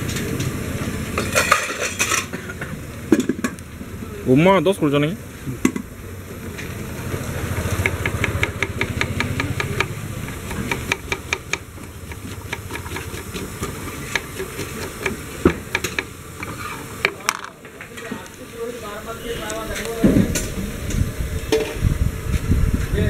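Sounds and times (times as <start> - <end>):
knife chopping on wooden board: 7.8 - 16.1.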